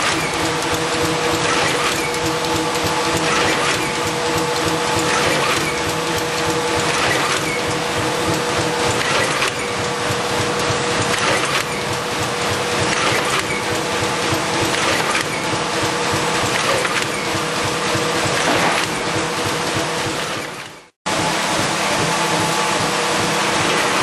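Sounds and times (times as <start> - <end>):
machine clattering: 0.0 - 20.9, 21.5 - 24.0
loud machine clacks: 0.0 - 24.0.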